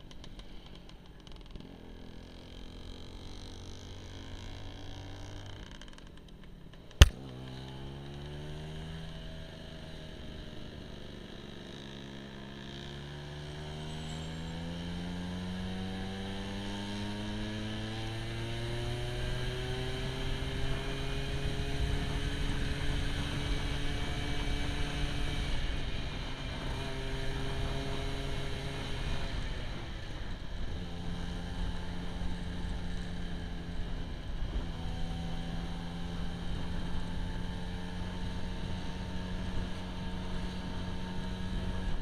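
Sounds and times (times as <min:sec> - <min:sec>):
sharp click: 0:07.0 - 0:07.2.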